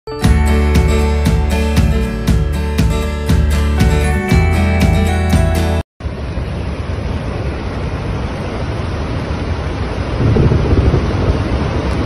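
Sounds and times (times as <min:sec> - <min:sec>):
floodwater rushing with deep rumble: 0:06.0 - 0:12.0.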